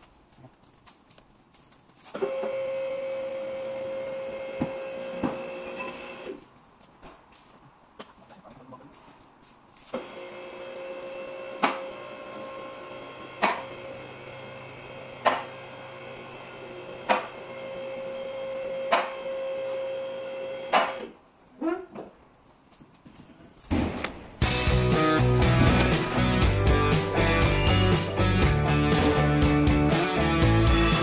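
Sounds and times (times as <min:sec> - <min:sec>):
electric pump motor whining: 0:02.2 - 0:06.4, 0:10.0 - 0:21.1.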